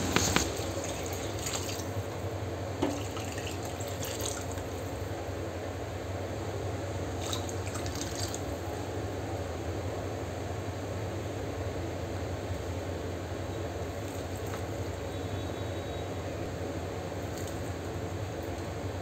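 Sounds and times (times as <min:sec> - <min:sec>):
water pouring and splashing: 0:00.0 - 0:02.0, 0:02.8 - 0:04.9, 0:07.1 - 0:08.5.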